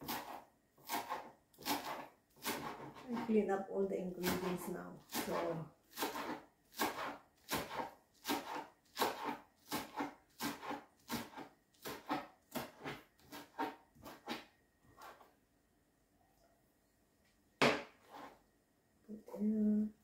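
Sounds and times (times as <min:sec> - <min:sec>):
knife chopping on plastic board: 0:00.0 - 0:03.3, 0:04.2 - 0:15.2, 0:17.6 - 0:18.3.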